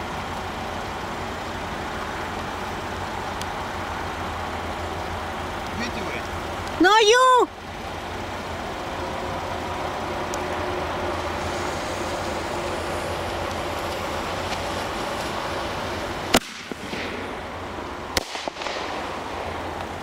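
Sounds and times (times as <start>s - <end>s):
firework spraying hiss: 10.2s - 20.0s
firework bangs: 13.2s - 20.0s
small firework pops: 16.3s - 17.2s, 18.1s - 20.0s.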